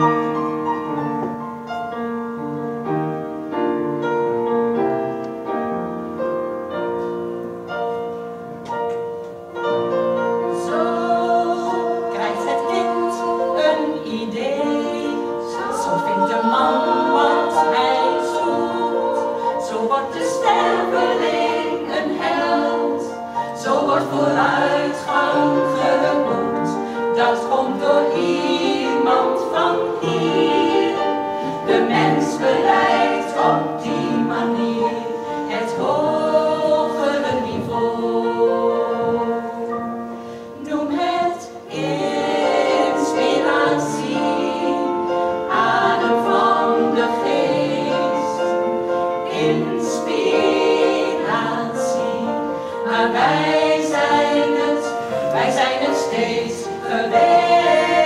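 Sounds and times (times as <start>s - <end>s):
women's choir singing in harmony: 0.0s - 58.0s.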